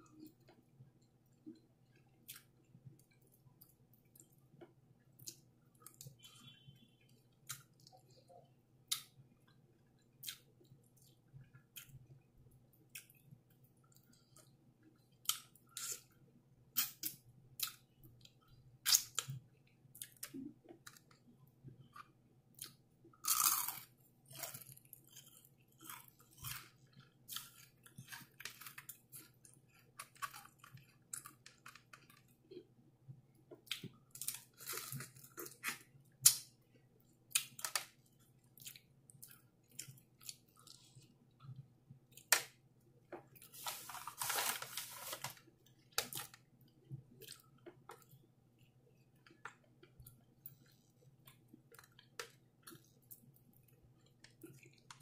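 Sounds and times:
quiet chewing: 17.1s - 42.3s, 45.0s - 55.0s
crunching fried chicken: 22.0s - 32.4s.

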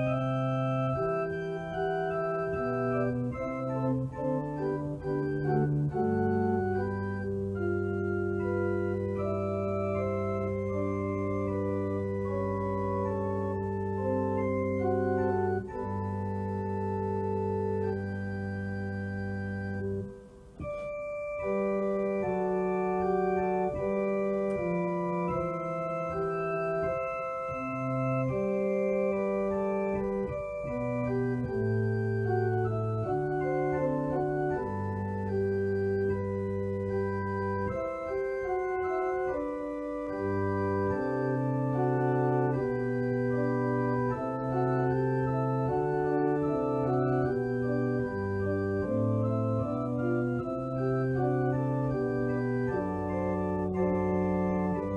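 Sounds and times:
organ playing held chords: 0.0s - 54.9s.

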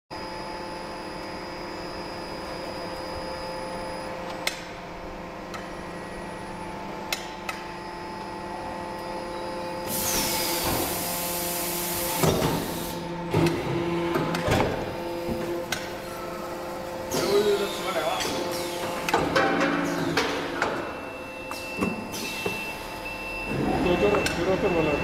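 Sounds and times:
die casting machine humming: 0.2s - 25.0s
pneumatic hiss with falling whistle: 21.5s - 22.8s.

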